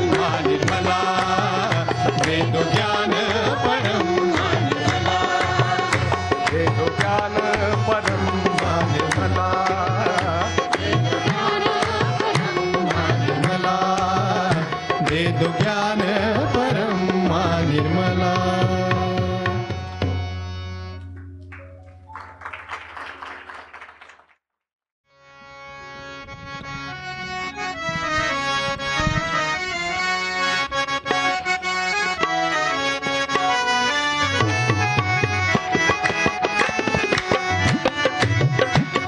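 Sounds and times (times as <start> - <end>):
group singing devotional song: 0.0 - 18.0
percussion drumming: 0.0 - 20.4, 34.2 - 39.0.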